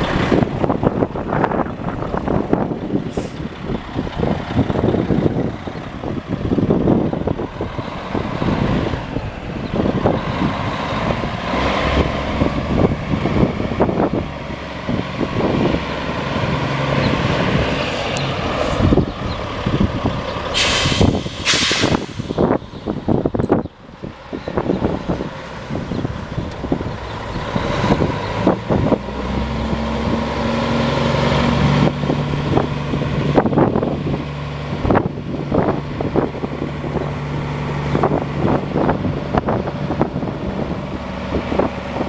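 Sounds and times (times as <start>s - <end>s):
diesel truck engine running: 0.0s - 42.0s
air brakes hissing: 3.1s - 3.5s, 20.5s - 22.7s.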